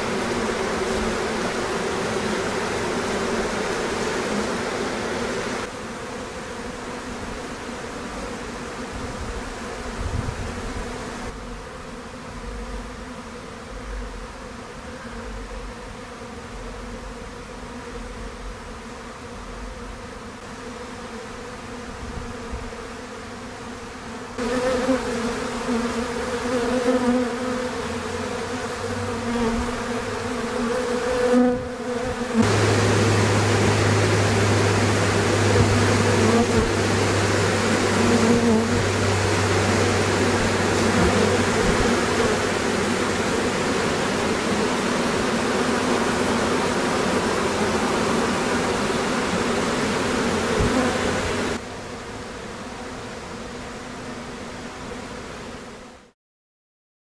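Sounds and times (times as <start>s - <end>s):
honey bees buzzing: 0.0s - 56.0s.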